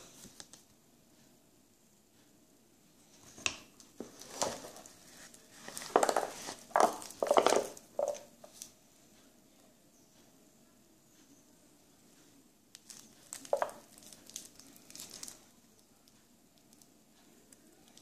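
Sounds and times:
plastic film crinkling: 4.0s - 8.7s, 12.7s - 16.9s.

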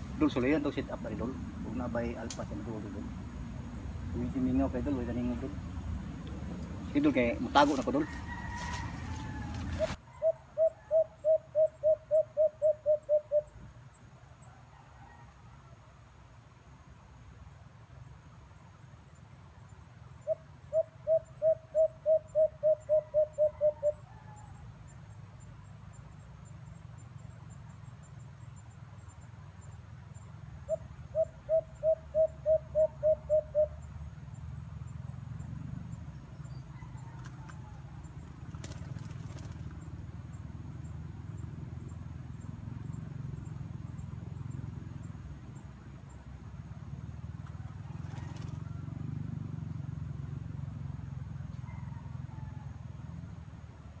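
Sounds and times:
insect drone: 0.0s - 10.0s, 10.6s - 54.0s
bird calling in low notes: 6.8s - 13.6s, 20.2s - 24.5s.

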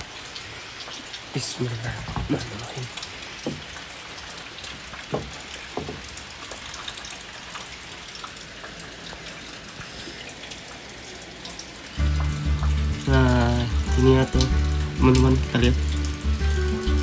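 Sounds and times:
light rain hissing: 0.0s - 17.0s
water drips: 0.0s - 17.0s
soft knocks: 3.4s - 3.7s, 5.1s - 6.1s.

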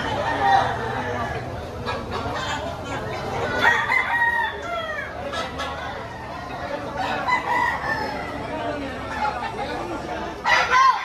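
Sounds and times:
rooster crowing: 3.6s - 5.2s.

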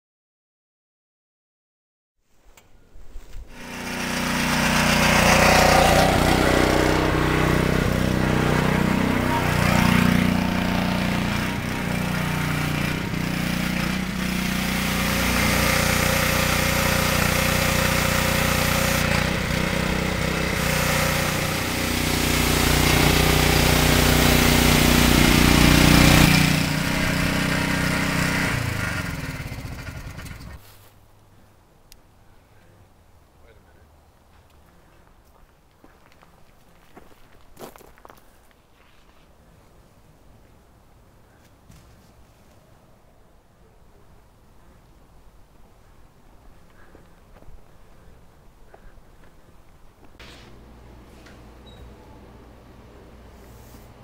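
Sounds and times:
power sprayer motor humming: 3.5s - 30.6s
hissing spray: 13.4s - 27.5s.

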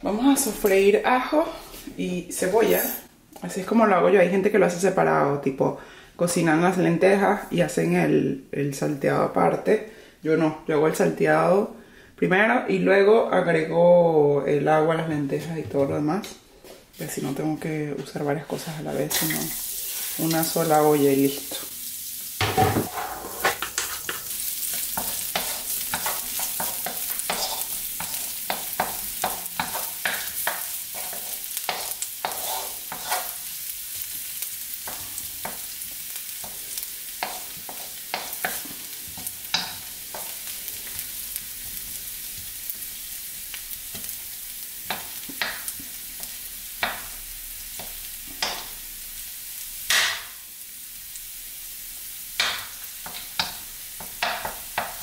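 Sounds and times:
garlic sizzling in hot oil: 18.6s - 55.0s
wooden spatula clicking and scraping: 23.5s - 33.4s, 37.2s - 40.4s.

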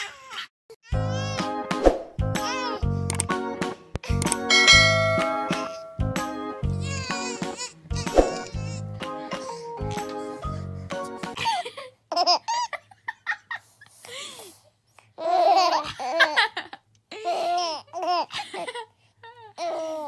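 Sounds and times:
babies giggling and squealing: 15.2s - 20.0s.

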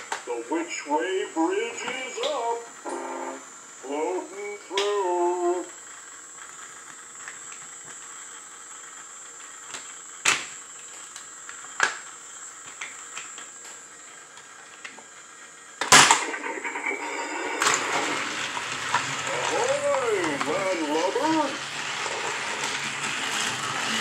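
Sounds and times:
plastic toy track clicks: 15.8s - 24.0s.

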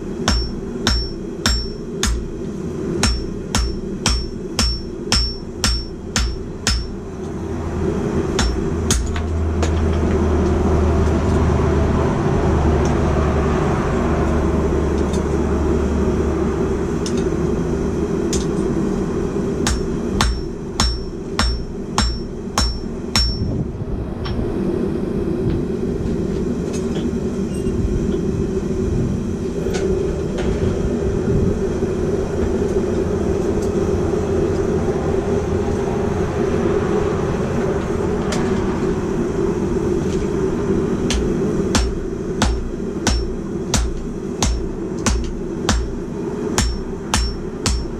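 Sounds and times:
hammer striking steel on anvil: 0.0s - 2.4s, 3.0s - 7.4s, 8.3s - 10.2s, 19.6s - 23.5s, 41.1s - 46.0s, 46.6s - 47.9s
steady rushing roar: 0.0s - 47.9s.

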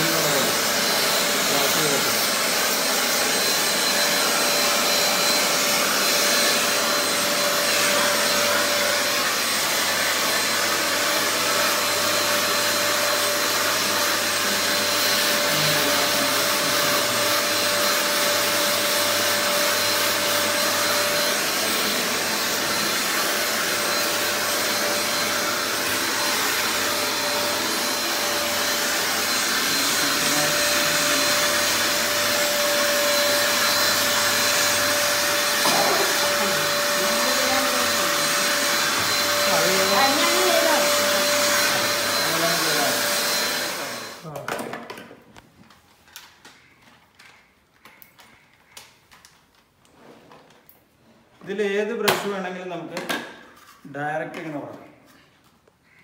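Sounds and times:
handheld vacuum cleaner running: 0.0s - 44.7s.

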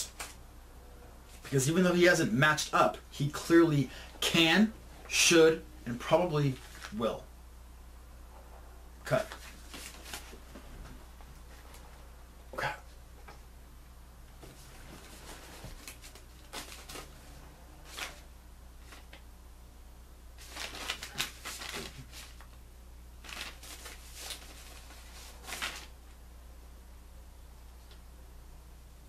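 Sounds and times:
low hum: 0.3s - 1.5s
paper rustling: 6.4s - 7.0s, 9.1s - 11.8s, 14.4s - 19.2s, 20.4s - 22.6s, 23.2s - 26.0s.

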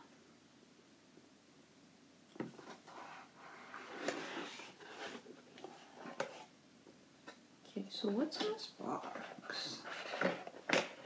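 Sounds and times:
lid scraping and rustling: 2.4s - 6.5s, 9.0s - 11.0s.

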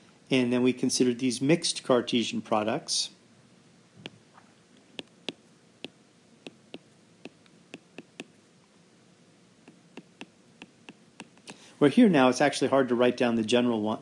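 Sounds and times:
marker tapping on whiteboard: 5.0s - 8.4s, 9.6s - 11.4s.

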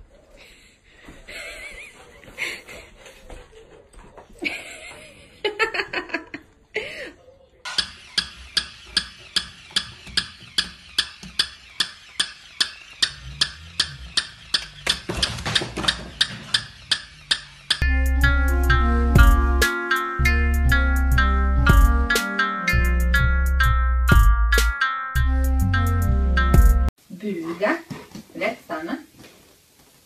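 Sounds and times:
steady ticking clicks: 7.7s - 17.8s.

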